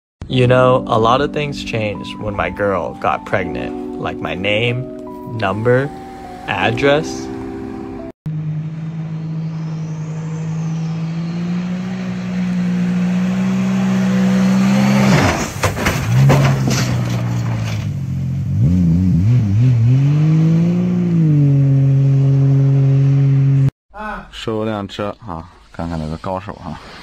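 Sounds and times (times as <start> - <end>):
motorboat engine passing: 5.5 - 15.2
rush of spray: 25.5 - 27.0.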